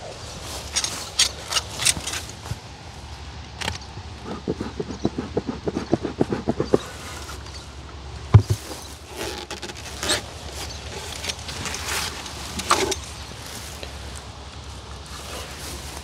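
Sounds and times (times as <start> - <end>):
scraping and handling noises: 0.0 - 2.7, 3.6 - 16.0
wooden thump: 8.3 - 8.7.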